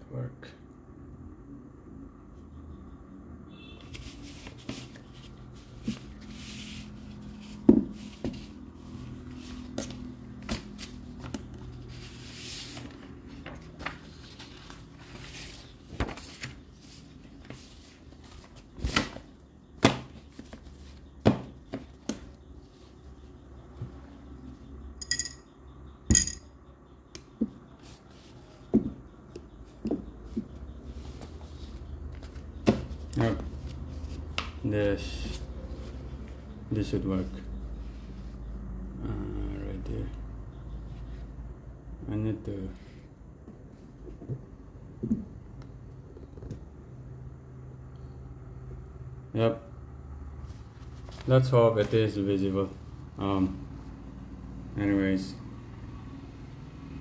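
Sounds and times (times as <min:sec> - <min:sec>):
paper rustling: 0:03.8 - 0:22.4, 0:30.3 - 0:36.4, 0:50.5 - 0:52.2
ringing clinks: 0:25.0 - 0:26.6.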